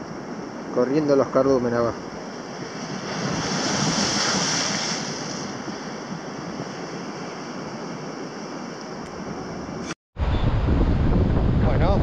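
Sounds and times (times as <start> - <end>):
wind buffeting microphone: 1.8 - 12.0
surf washing against rocks: 2.2 - 7.6.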